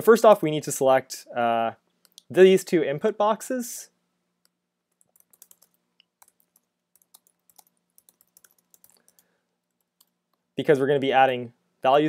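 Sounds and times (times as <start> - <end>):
typing on computer keyboard: 4.9 - 10.2.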